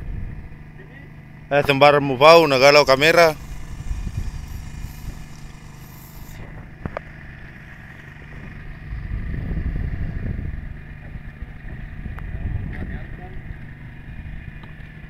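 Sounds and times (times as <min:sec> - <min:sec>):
boat engine droning: 0:00.0 - 0:15.0
low rumble: 0:03.3 - 0:07.0.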